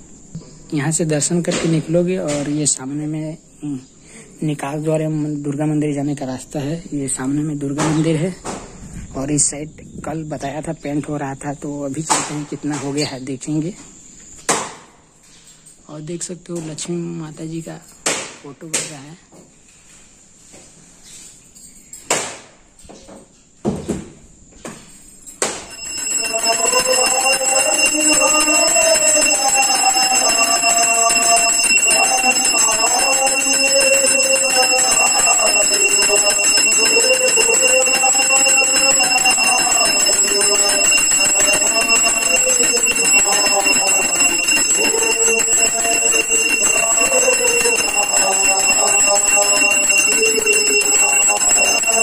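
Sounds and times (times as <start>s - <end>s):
high bell-like ringing tone: 25.6s - 52.0s.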